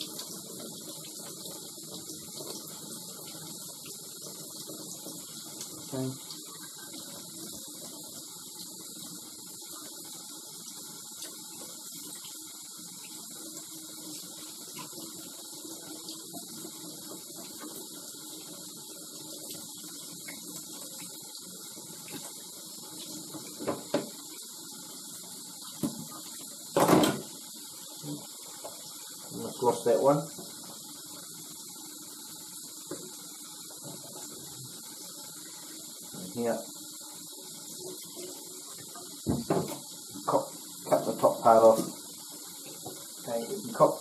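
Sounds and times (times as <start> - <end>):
tap running into a steel sink: 23.3 - 24.2.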